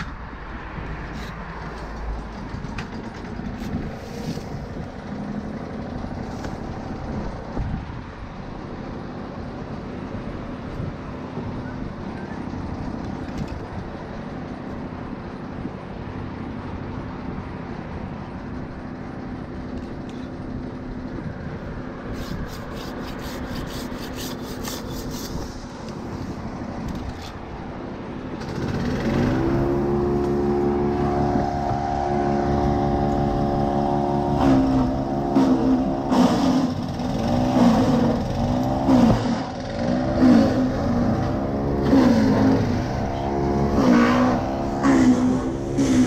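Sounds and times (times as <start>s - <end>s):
wood chipper engine running: 1.6s - 10.6s, 25.4s - 46.0s
handsaw cutting a branch: 22.0s - 26.3s, 34.2s - 42.9s, 43.7s - 46.0s.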